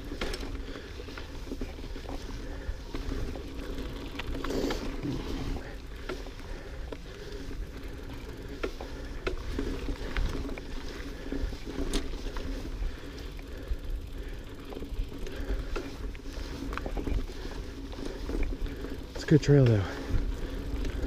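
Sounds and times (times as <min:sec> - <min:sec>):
bike rattles and clicks: 0:00.0 - 0:21.0
bike tyres rolling on dirt: 0:00.0 - 0:21.0.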